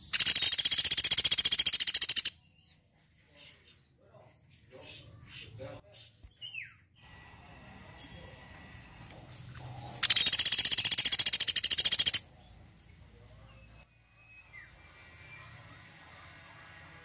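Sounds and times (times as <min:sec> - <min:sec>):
woodpecker rattling trill: 0:00.0 - 0:02.4, 0:09.8 - 0:12.2
faint bird chirps: 0:00.0 - 0:06.8, 0:09.3 - 0:15.5.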